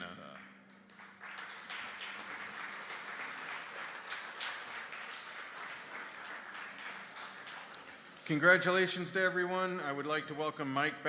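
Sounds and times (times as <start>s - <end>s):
audience applauding: 0.9s - 8.9s.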